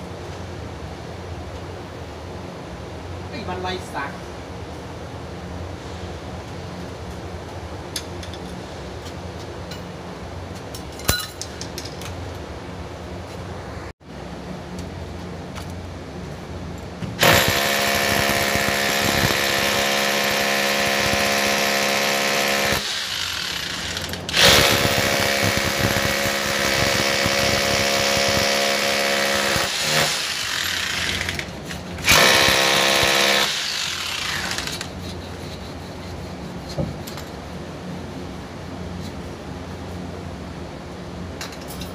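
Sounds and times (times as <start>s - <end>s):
rotary hammer drill boring into concrete: 17.2s - 35.0s.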